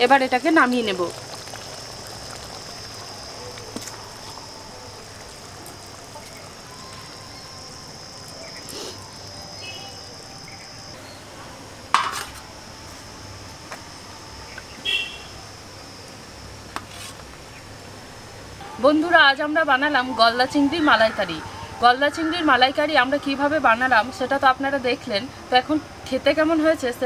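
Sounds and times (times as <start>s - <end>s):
metal pot and utensils clinking: 12.0s - 12.4s.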